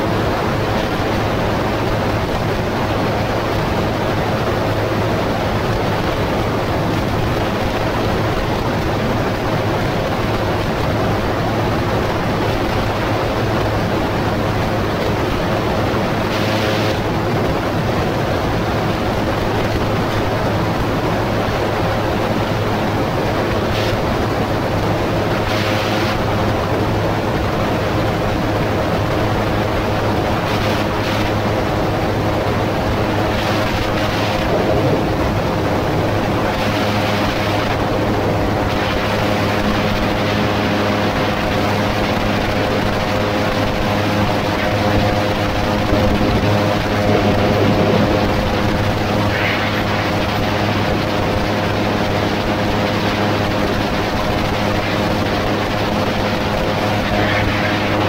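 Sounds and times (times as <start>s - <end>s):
aircraft engine and propeller drone: 0.0s - 58.0s
wind rushing: 31.1s - 40.3s, 42.1s - 53.1s.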